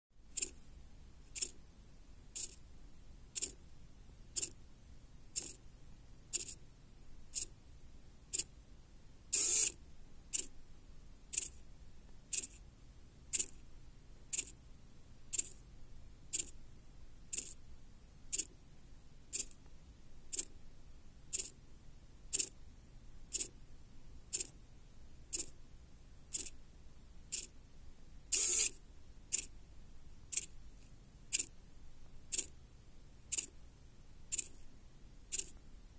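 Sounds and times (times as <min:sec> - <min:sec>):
servo motor whirring: 0:09.4 - 0:09.7, 0:28.3 - 0:28.7.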